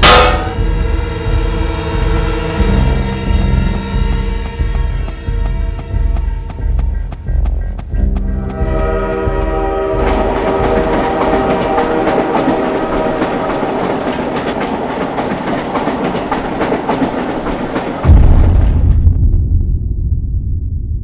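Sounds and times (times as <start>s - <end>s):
loud deep rumble: 0.0s - 12.2s, 18.0s - 21.0s
train wheels clattering over rail joints: 10.0s - 18.0s.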